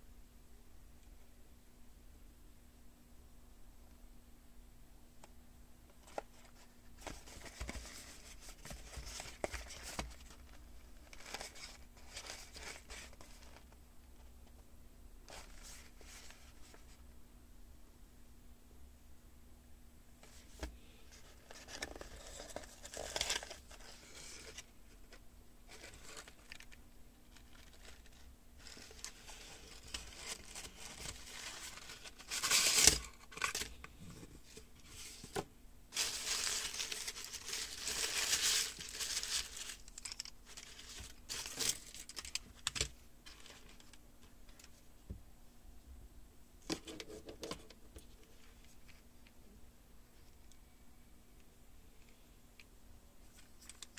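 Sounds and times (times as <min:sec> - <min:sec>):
cardboard packaging handled: 0:06.0 - 0:13.7, 0:20.2 - 0:25.1, 0:25.7 - 0:44.0
plastic wrapper crinkling: 0:35.9 - 0:44.0
plastic wrapper tearing: 0:36.0 - 0:42.9.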